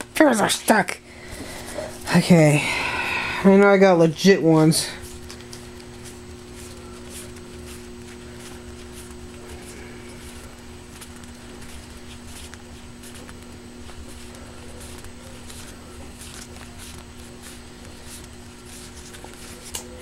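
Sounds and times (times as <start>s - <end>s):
low electrical hum: 0.0s - 20.0s
paper cards flicking and rustling: 5.0s - 20.0s.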